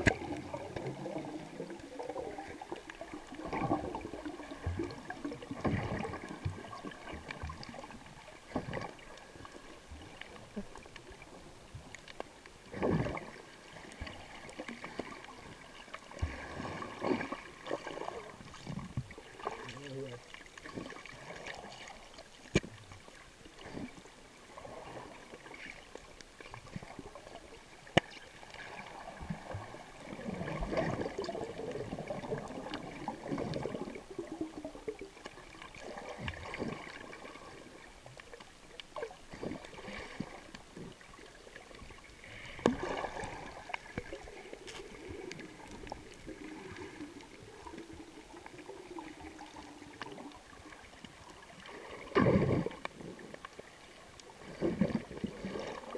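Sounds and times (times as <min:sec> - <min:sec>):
sharp underwater clicks: 0:00.0 - 0:00.9, 0:27.8 - 0:28.3
underwater sloshing and gurgling: 0:00.0 - 0:55.9.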